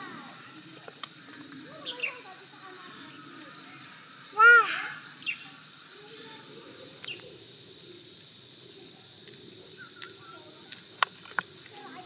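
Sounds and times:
high-pitched insect chorus: 0.0 - 12.0.

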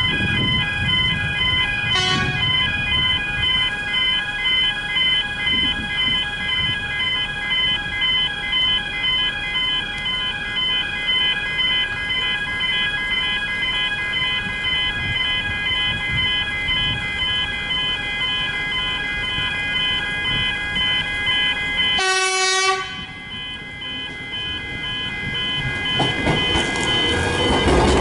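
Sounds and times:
level crossing bells ringing: 6.5 - 27.7.

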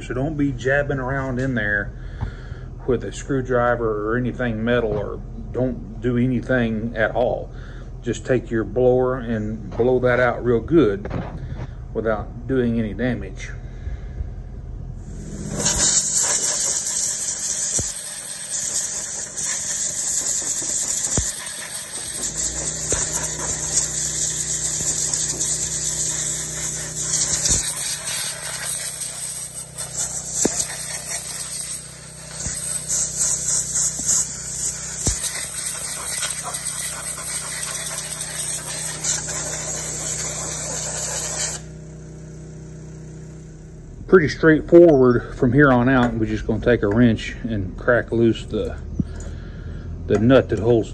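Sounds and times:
handheld blower rushing air: 15.0 - 42.3.

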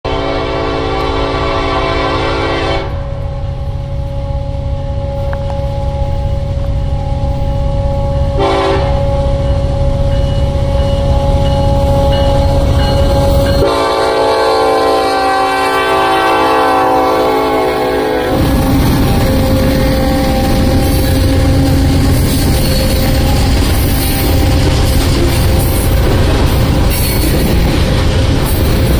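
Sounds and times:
locomotive horn blasts: 0.1 - 3.2, 7.6 - 9.8, 10.5 - 28.9
diesel engine rumble: 2.9 - 8.4, 18.3 - 28.9.

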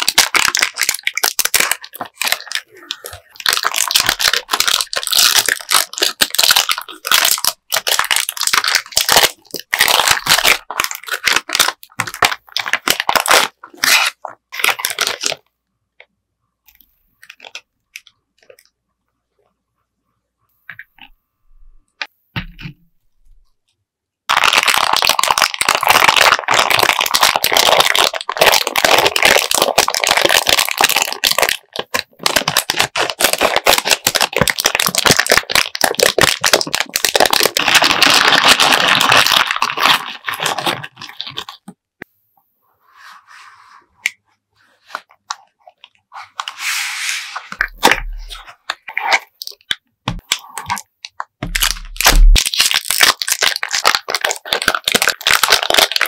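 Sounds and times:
plastic candy bag crinkling: 0.0 - 15.4, 17.2 - 18.7, 24.3 - 41.8, 47.4 - 56.0.

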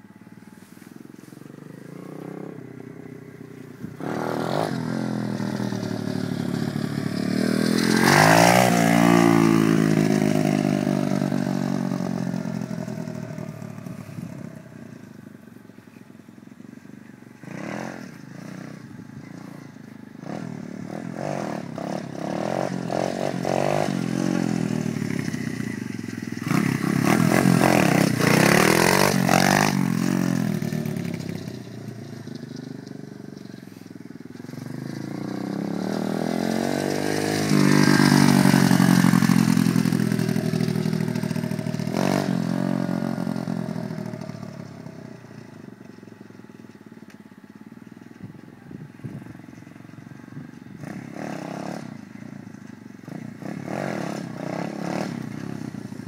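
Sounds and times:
motorbike engine revving: 1.3 - 15.0, 17.4 - 45.7, 50.3 - 56.0.

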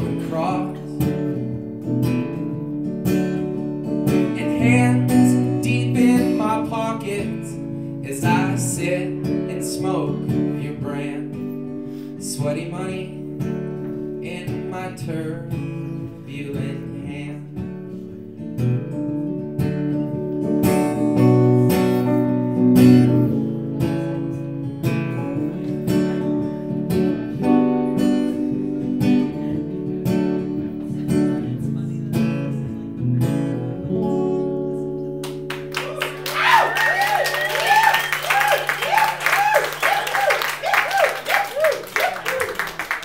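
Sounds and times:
acoustic guitar strumming: 0.0 - 36.3
audience clapping and cheering: 35.2 - 43.0.

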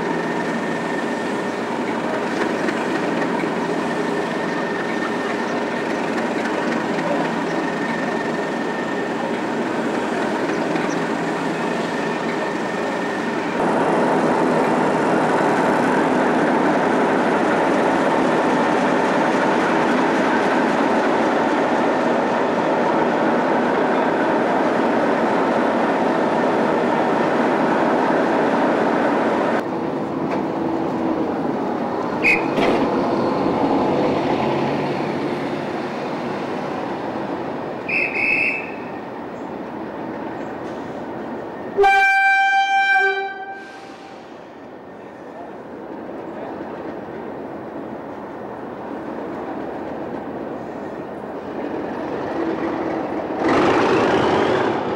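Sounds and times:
short high whistles: 37.9 - 38.9
locomotive horn blast: 41.8 - 44.1.

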